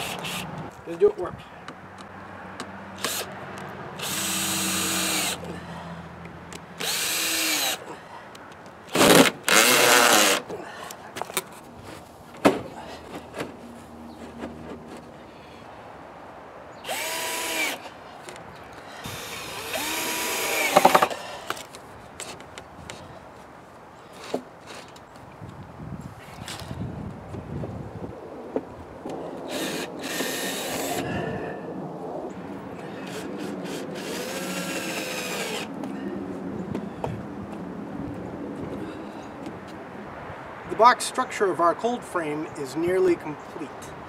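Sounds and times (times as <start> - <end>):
cordless drill driving screws: 0.0 - 0.5, 3.0 - 3.3, 4.0 - 5.4, 6.8 - 7.8, 8.9 - 10.4, 16.8 - 17.9, 19.0 - 21.1, 29.5 - 31.0, 33.0 - 35.7.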